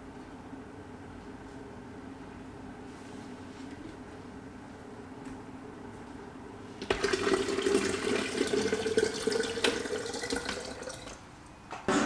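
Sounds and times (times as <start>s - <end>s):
water pouring from tap: 6.9s - 11.2s.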